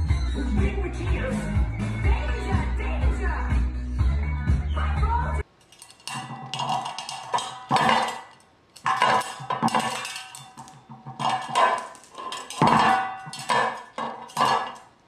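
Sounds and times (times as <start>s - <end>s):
household objects clattering: 5.6s - 15.0s.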